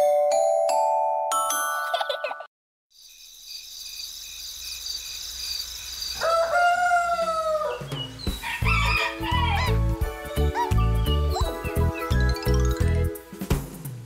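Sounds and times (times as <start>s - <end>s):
night insects chirring: 3.0s - 8.7s
rooster crowing: 6.2s - 9.8s.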